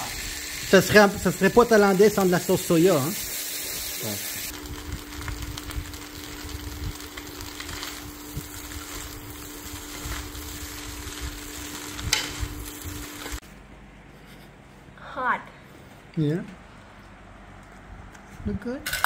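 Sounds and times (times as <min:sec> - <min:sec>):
rice sizzling in a pan: 0:00.0 - 0:13.4
steady hum: 0:00.0 - 0:18.6
utensils scraping a pan: 0:12.1 - 0:12.4.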